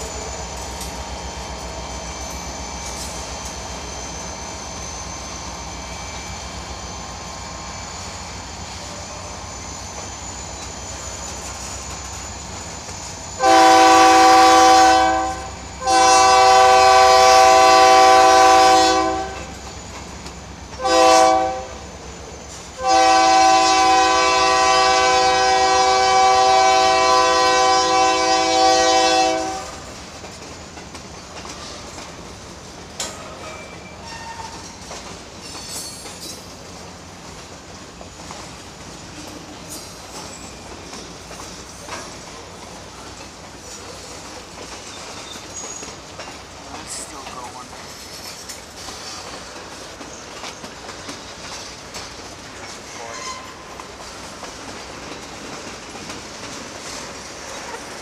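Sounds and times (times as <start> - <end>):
freight train rolling by: 0.0 - 58.0
locomotive horn blasts: 13.4 - 19.5, 20.8 - 21.8, 22.8 - 29.8.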